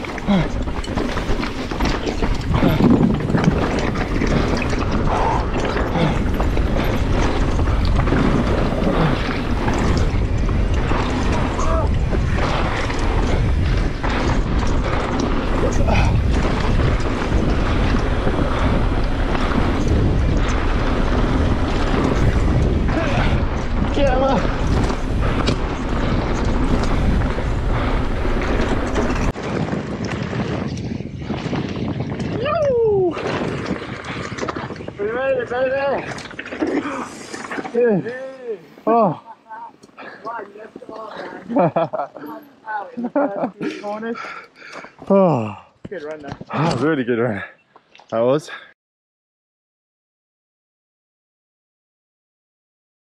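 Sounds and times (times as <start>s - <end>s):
wind rushing over microphone: 0.0s - 38.0s
mountain bike clattering over rocks: 0.0s - 38.6s.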